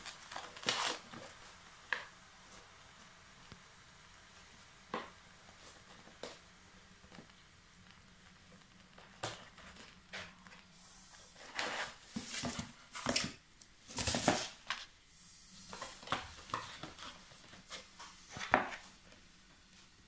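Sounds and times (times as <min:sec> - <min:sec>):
cardboard box scraping on tiles: 0:00.0 - 0:01.3, 0:10.8 - 0:13.3, 0:13.9 - 0:14.8.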